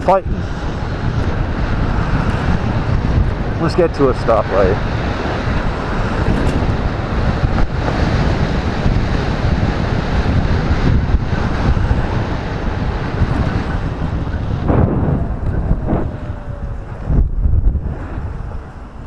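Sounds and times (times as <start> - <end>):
wind buffeting a microphone: 0.0 - 19.0
motorcycle running: 4.8 - 18.8.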